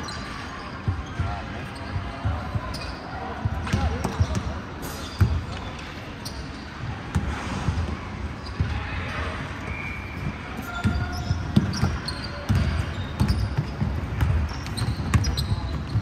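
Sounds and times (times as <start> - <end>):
sneakers squeaking on floor: 0.0 - 16.0.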